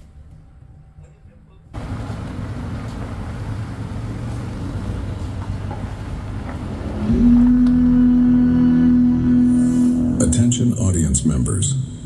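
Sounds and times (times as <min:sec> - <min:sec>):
low rumbling from speakers: 0:00.0 - 0:12.0
loud steady low tone: 0:06.8 - 0:12.0.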